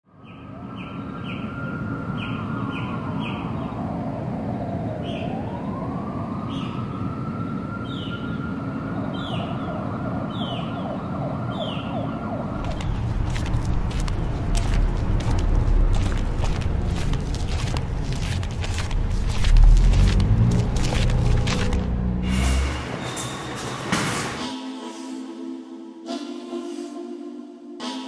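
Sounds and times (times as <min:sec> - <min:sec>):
siren wailing: 0:00.4 - 0:17.0
deeper rumble: 0:12.2 - 0:23.0
steady low rumble: 0:12.3 - 0:22.4.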